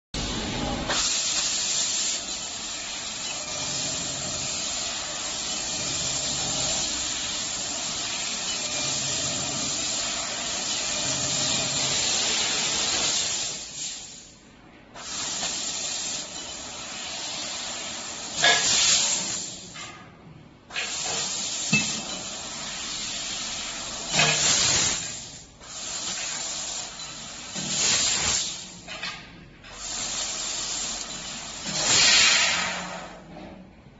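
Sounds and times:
laser cutter gas jet hissing: 0.2s - 14.4s, 15.0s - 19.8s, 20.7s - 28.9s, 29.6s - 33.2s
gas blasts: 0.8s - 14.3s, 20.7s - 28.8s.

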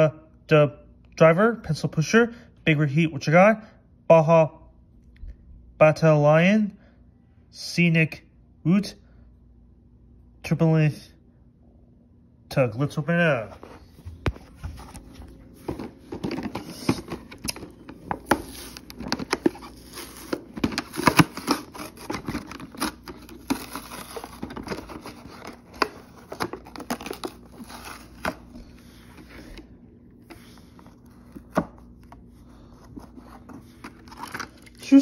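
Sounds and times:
cardboard packaging crinkling: 13.8s - 29.6s, 30.6s - 35.0s.

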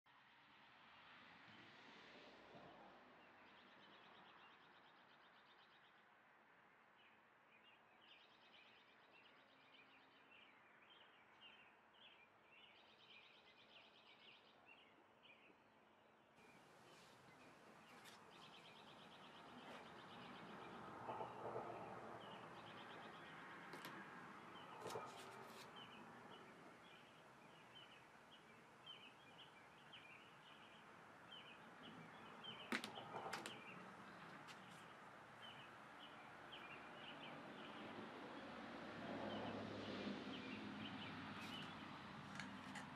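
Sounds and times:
small birds chirping: 7.0s - 38.6s, 40.3s - 42.9s.

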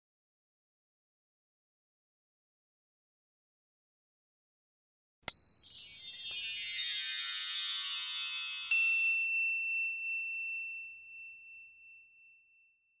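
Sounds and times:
ringing high tone: 5.3s - 12.8s
high tinkling tones: 5.3s - 13.0s
bright ding: 8.6s - 13.0s.

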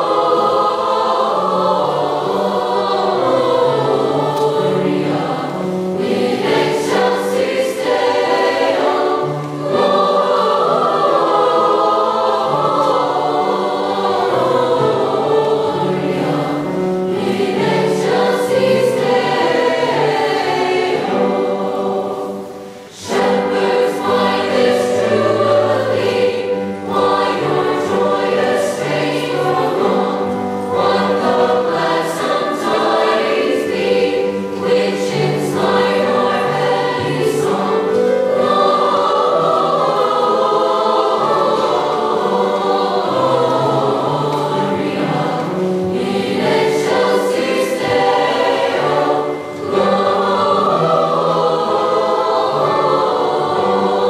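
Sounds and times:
choir singing: 0.0s - 54.0s.

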